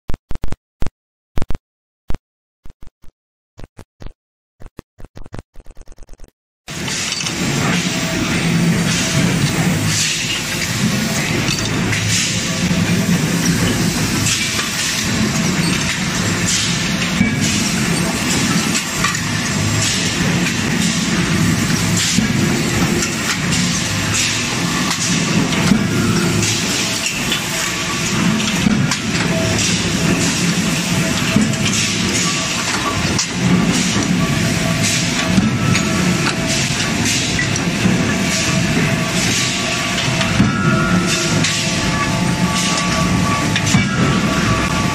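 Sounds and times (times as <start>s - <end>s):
electronic hits and crackles: 3.7s - 6.3s
machinery humming: 6.7s - 44.9s.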